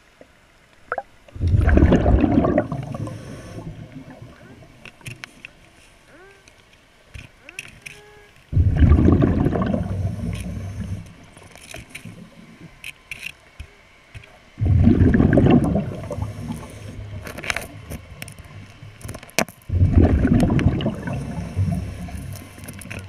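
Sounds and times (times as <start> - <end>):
underwater bubbles gushing: 0.9 - 5.0, 8.5 - 12.8, 14.6 - 19.0, 19.7 - 23.0
faint clicks: 4.8 - 8.5.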